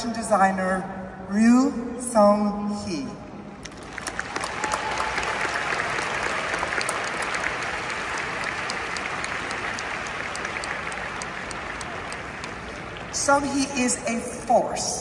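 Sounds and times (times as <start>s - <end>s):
large audience applauding: 3.6s - 13.2s.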